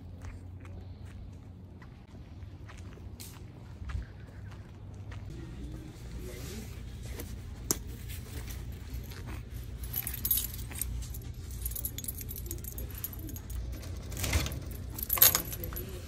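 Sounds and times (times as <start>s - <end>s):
steady low hum: 0.0s - 16.0s
keys jangling on keyring: 8.3s - 16.0s.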